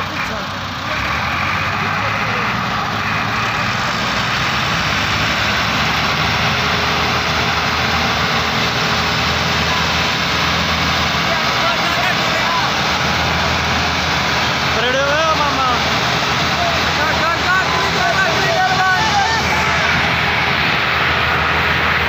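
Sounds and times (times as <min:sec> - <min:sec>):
tractor diesel engines straining: 0:00.0 - 0:22.0.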